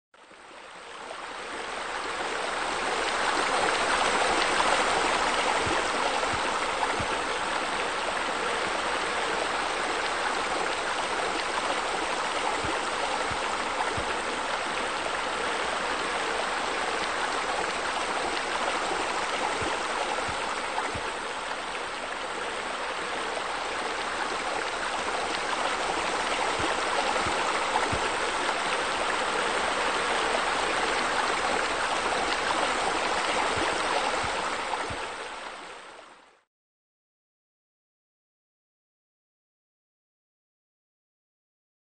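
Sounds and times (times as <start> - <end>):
water splashing over rocks: 8.7 - 35.2.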